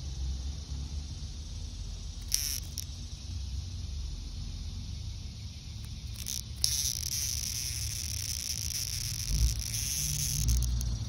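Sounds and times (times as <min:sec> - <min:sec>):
low steady rumble: 0:00.0 - 0:11.0
high insect buzzing: 0:01.7 - 0:04.3, 0:05.3 - 0:11.0.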